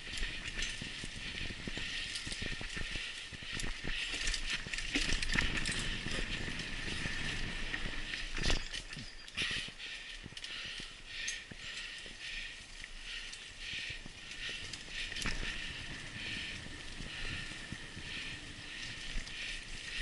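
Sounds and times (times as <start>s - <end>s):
bike rattling over bumps: 0.0s - 12.5s
bike tyres on dirt: 0.0s - 20.0s.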